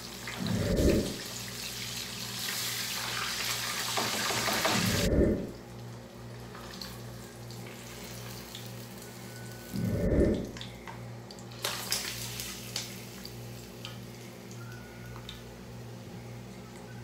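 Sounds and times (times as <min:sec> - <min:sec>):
fish sizzling in hot oil: 0:01.4 - 0:04.7, 0:11.6 - 0:13.7.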